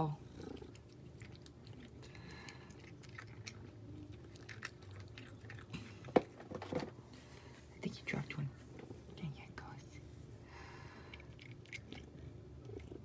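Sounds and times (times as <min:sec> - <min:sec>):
cat chewing treats: 0:00.4 - 0:06.4, 0:10.8 - 0:13.0.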